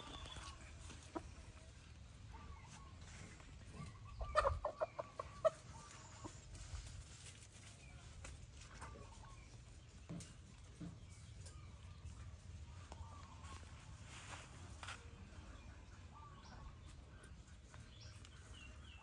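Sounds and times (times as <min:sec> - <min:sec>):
rooster clucking: 0:04.1 - 0:06.5.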